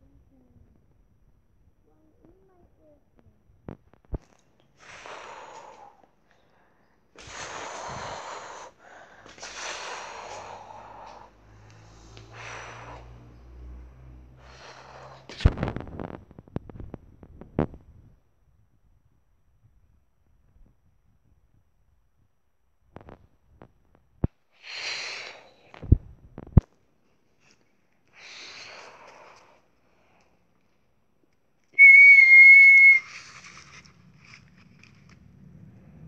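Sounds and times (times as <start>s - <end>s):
breathy mouth whooshing: 7.2s - 15.5s, 24.6s - 25.8s
low hum: 33.0s - 36.0s.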